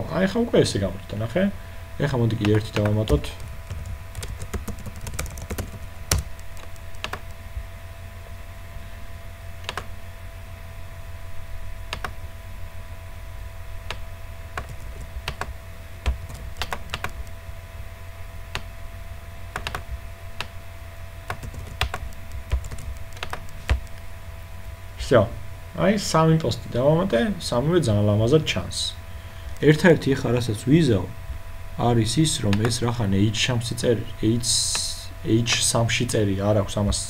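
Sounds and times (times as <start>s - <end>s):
steady low hum: 0.0s - 37.0s
keyboard keystrokes: 2.4s - 7.4s, 11.9s - 12.2s, 14.6s - 17.3s, 19.6s - 19.8s, 21.3s - 24.0s.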